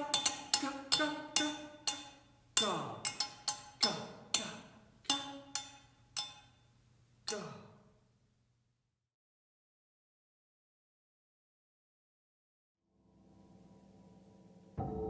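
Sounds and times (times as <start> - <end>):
sticks striking frying pan: 0.0 - 6.5.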